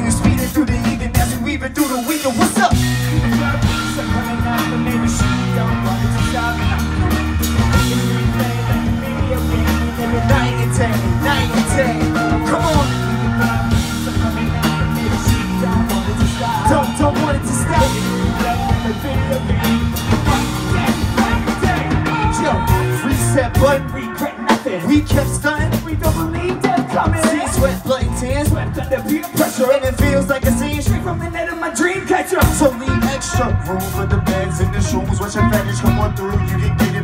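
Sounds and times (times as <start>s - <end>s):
bass line: 0.0s - 37.0s
drum kit: 0.0s - 37.0s
keyboard: 0.0s - 37.0s
person singing: 0.0s - 37.0s
electric guitar: 2.5s - 31.2s.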